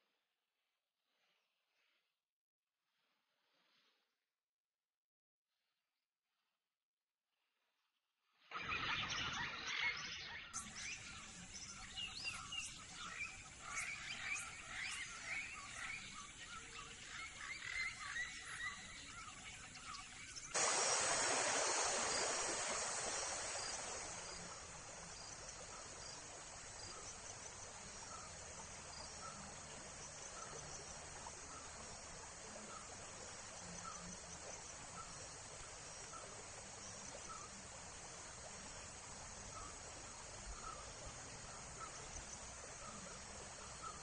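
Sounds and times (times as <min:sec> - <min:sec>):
insects chirping: 0:20.5 - 0:44.0
rushing hiss: 0:20.6 - 0:28.0.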